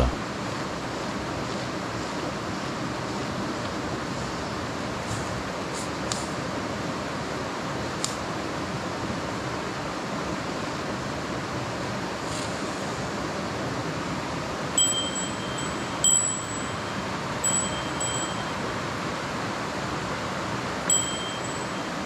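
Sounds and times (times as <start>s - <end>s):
mountain stream rushing: 0.0s - 22.0s
bright chime notes: 14.8s - 18.6s, 20.9s - 22.0s.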